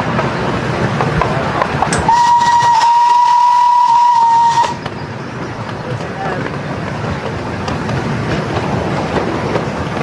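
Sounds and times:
miniature steam locomotive running: 0:00.2 - 0:10.0
steam whistle blast: 0:02.1 - 0:04.8.

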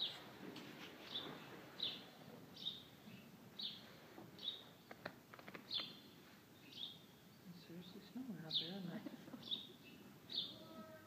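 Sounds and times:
small bird chirping: 0:04.4 - 0:07.5, 0:09.4 - 0:11.0
faint sharp clicks: 0:04.9 - 0:05.9.

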